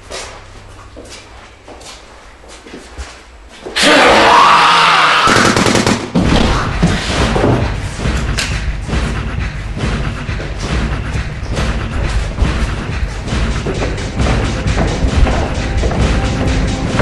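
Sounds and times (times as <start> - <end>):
gunshots: 5.3 - 6.5.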